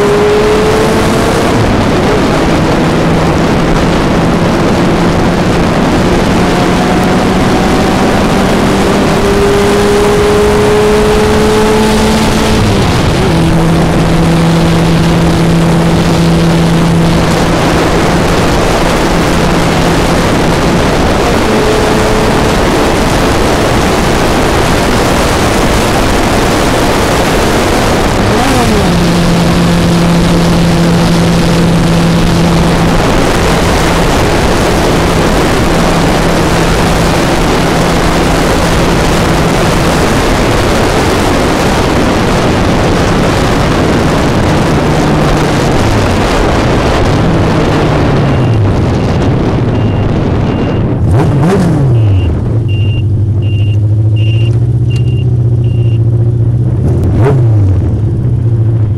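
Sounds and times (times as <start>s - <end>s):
wind rush: 0.0s - 54.9s
motorcycle engine running: 0.0s - 58.9s
short high beep: 48.2s - 48.6s, 49.7s - 50.9s, 51.9s - 56.1s.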